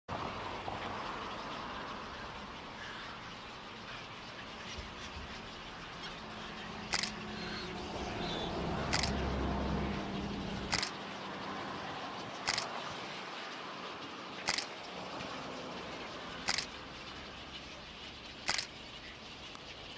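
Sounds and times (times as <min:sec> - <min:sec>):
outdoor background noise: 0:00.1 - 0:19.9
camera shutter clicks: 0:06.9 - 0:07.2, 0:08.9 - 0:09.2, 0:10.7 - 0:11.0, 0:12.5 - 0:12.7, 0:14.5 - 0:14.7, 0:16.5 - 0:16.7, 0:18.5 - 0:18.7.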